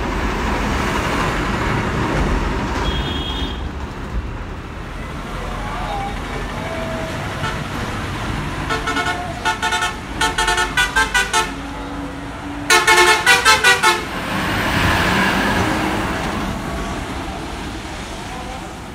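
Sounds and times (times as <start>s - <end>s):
bus engine and tyre noise: 0.0s - 18.9s
bus horn honking: 2.8s - 3.7s, 6.2s - 14.4s.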